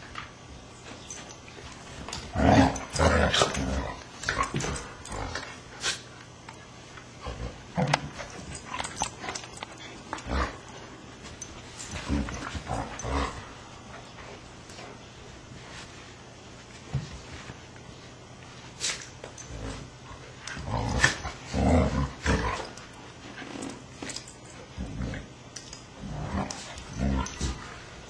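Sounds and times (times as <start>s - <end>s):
dogs growling: 2.1s - 6.0s, 7.2s - 10.9s, 11.8s - 13.9s, 19.4s - 23.9s, 24.7s - 28.0s.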